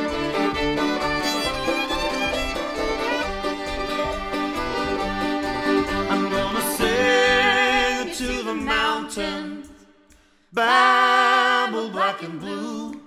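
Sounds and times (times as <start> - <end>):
folk band playing: 0.0 - 9.3
vocal harmonies: 6.0 - 13.0.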